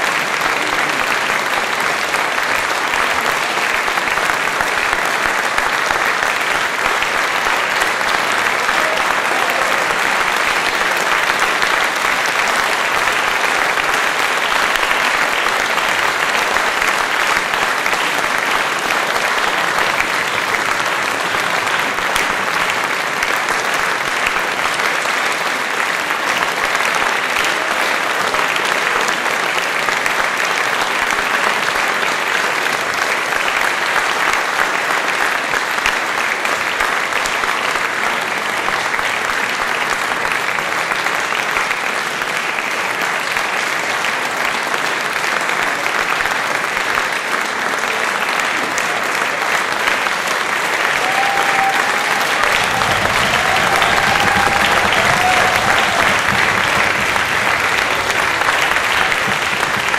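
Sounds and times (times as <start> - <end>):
audience applauding: 0.0 - 59.9.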